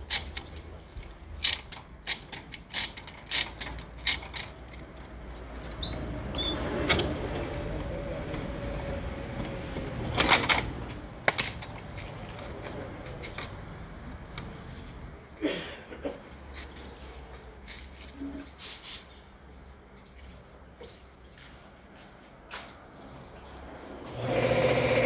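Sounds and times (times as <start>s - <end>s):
chain hoist ratchet clicks: 0.0s - 5.2s.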